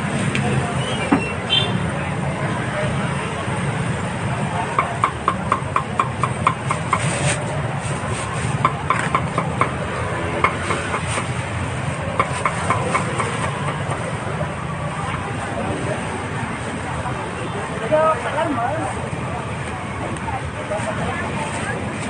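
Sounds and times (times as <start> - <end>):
low traffic rumble: 0.0 - 22.0
market noise: 0.0 - 22.0
cleaver chopping meat: 4.8 - 7.1, 8.6 - 9.8, 12.2 - 14.1.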